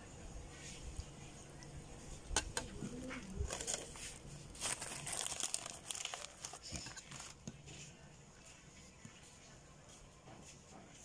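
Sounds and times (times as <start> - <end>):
plastic crinkling: 3.0 - 7.6.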